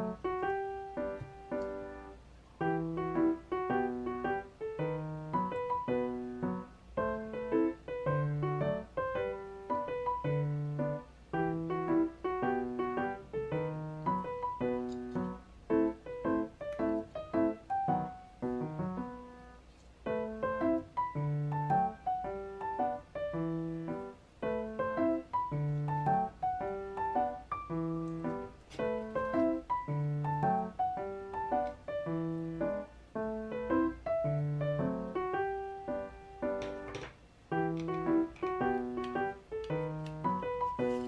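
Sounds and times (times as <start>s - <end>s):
light piano tune: 0.0s - 41.0s.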